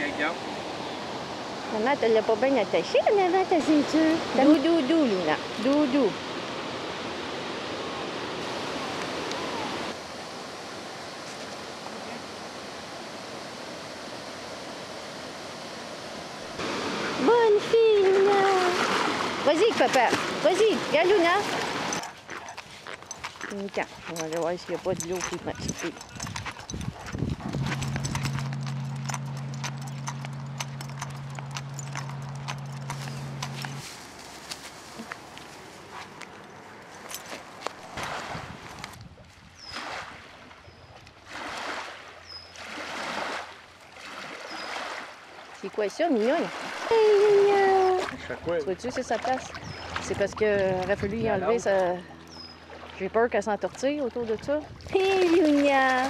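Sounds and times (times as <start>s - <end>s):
water rushing over lock gates: 15.4s - 22.0s
dog claws clicking on pavement: 21.4s - 37.8s
steady low hum: 25.0s - 36.6s.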